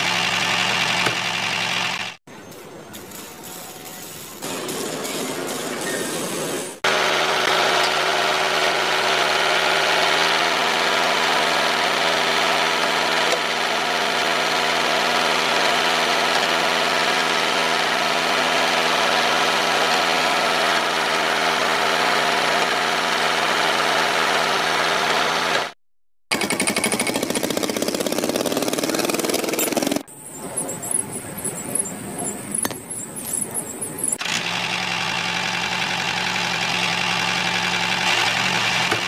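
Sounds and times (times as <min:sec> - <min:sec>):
small electric motors whirring: 0:28.9 - 0:39.0.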